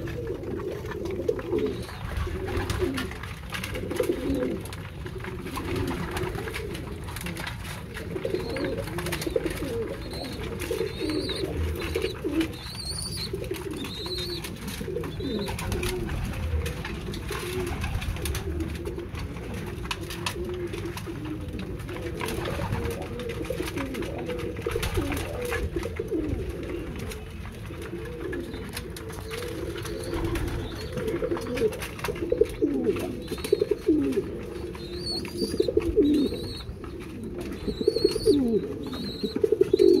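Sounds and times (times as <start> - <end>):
pigeons cooing: 0.0 - 40.0.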